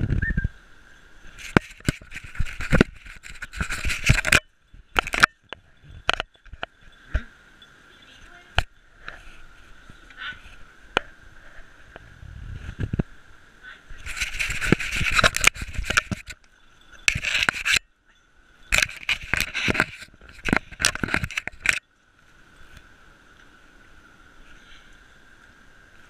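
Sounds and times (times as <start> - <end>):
scraping on camera housing: 1.3 - 6.7, 14.0 - 17.8, 18.7 - 21.8
sharp clicks and knocks: 1.4 - 7.3, 14.1 - 17.8, 18.7 - 21.8.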